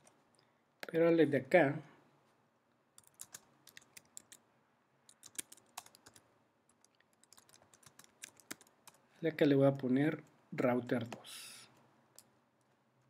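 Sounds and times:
faint keyboard typing: 2.9 - 4.4, 5.0 - 9.1, 9.7 - 12.8.

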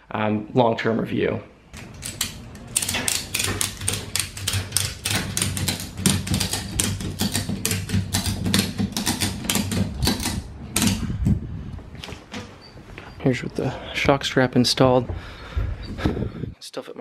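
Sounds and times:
ratchet strap clicking: 1.8 - 11.0.

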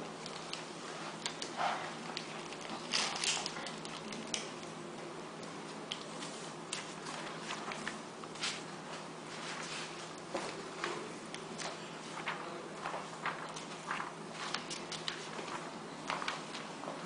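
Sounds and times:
wrapper rustling: 0.1 - 4.5, 12.1 - 16.7.

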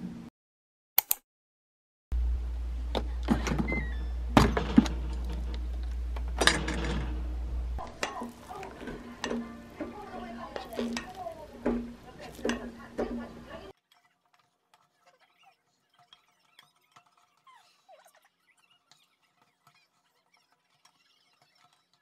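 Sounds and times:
steady low hum: 2.2 - 13.7.

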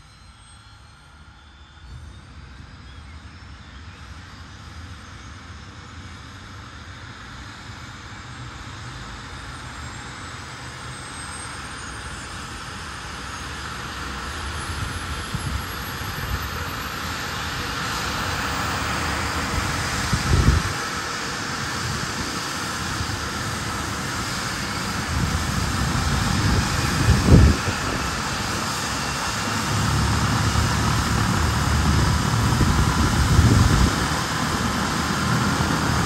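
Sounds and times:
helicopter rotor beat: 0.0 - 36.0
helicopter turbine whine: 0.0 - 36.0.

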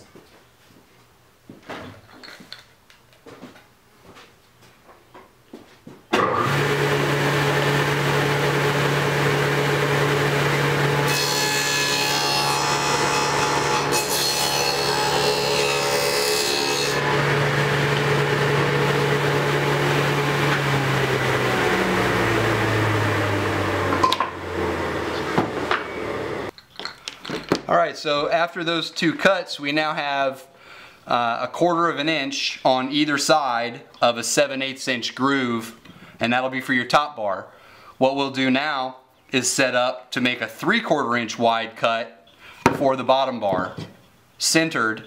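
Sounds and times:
saw blades spinning down: 6.2 - 26.5
saw cutting wood: 6.2 - 26.5
table saw running: 6.2 - 26.5.

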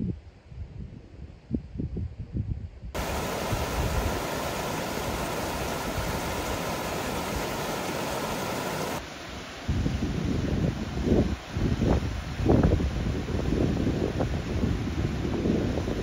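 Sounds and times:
wind buffeting microphone: 1.5 - 9.0, 9.7 - 16.0
running water hiss: 3.0 - 9.6.

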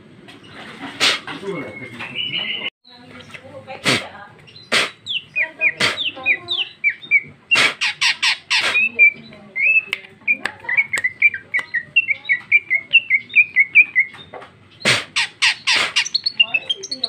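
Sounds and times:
bird harsh raspy notes: 3.7 - 17.0
bird quick chirps: 4.5 - 17.0.

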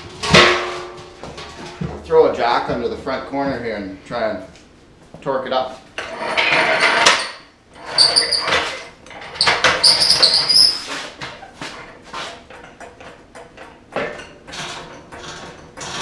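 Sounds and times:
floor jack squeaks: 6.0 - 13.1.

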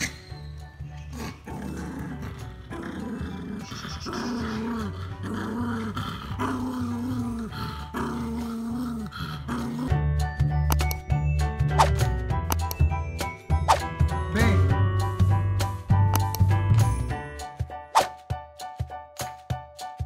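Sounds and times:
dog growling and snarling: 1.0 - 10.0.

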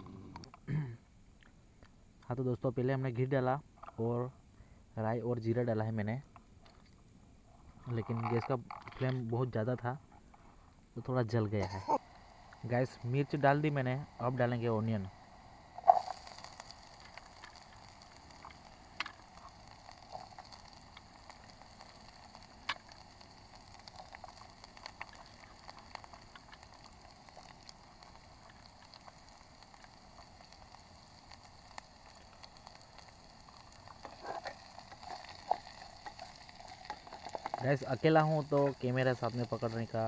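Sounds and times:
ghee sizzling in a pan: 11.6 - 40.0
mustard seeds popping: 15.8 - 40.0.

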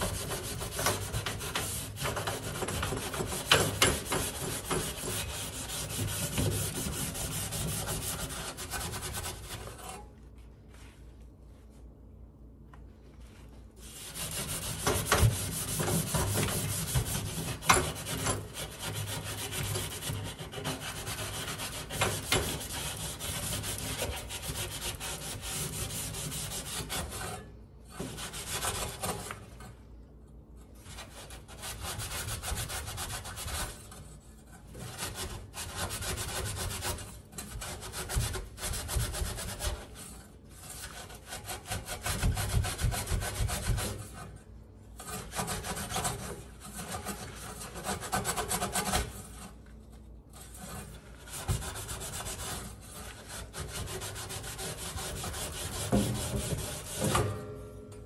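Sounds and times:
gloved hand scrubbing metal: 0.0 - 10.1, 13.8 - 29.4, 50.3 - 57.4.

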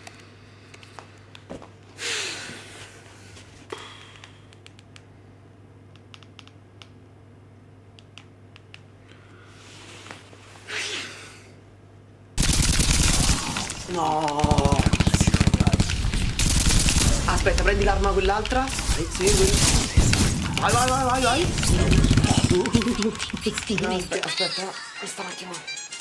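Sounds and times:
man breathing: 0.0 - 4.5
low hum: 11.6 - 24.1.

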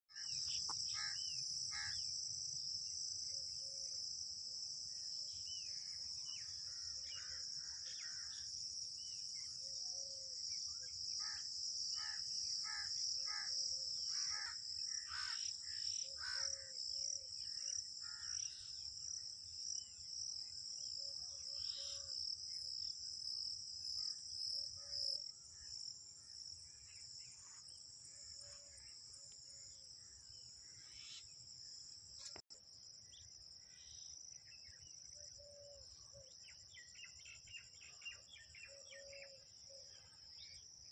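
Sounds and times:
crickets chirring: 0.1 - 40.9.

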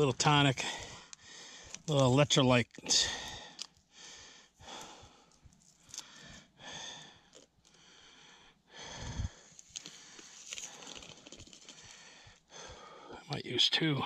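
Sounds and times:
man breathing hard: 0.6 - 1.9, 2.9 - 13.3
plastic packet crinkling: 9.6 - 12.0.

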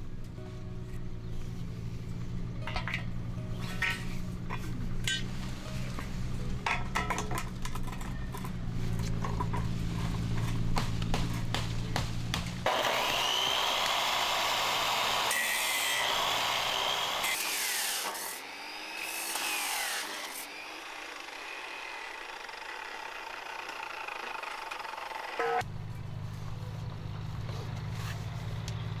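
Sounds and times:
chop saw cutting metal: 12.3 - 25.6.

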